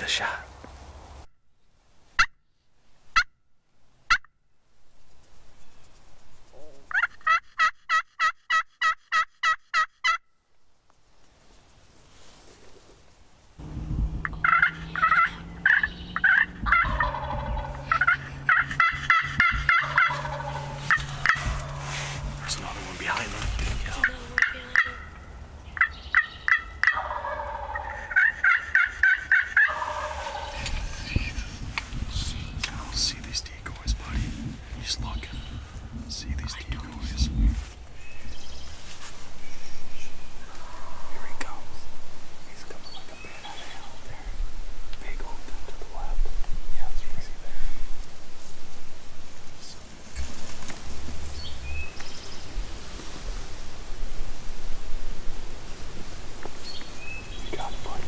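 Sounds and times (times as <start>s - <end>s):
turkey call clucks and yelps: 6.8s - 10.2s, 14.2s - 22.0s, 24.0s - 31.0s.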